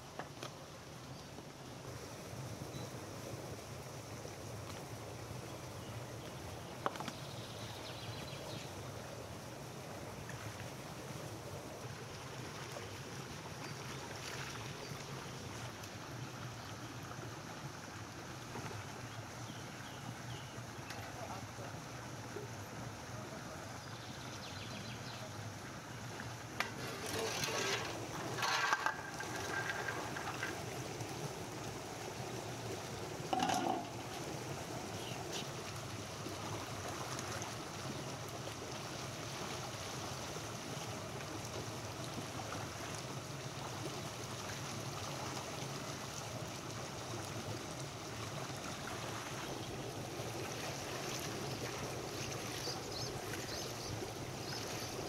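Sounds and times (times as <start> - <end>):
water running in a channel: 0.0 - 55.0
metal basin clinking on concrete: 26.6 - 29.9, 33.3 - 34.0
arils pouring into steel bowl: 26.7 - 30.6, 33.3 - 34.0
metal knock: 33.3 - 33.9.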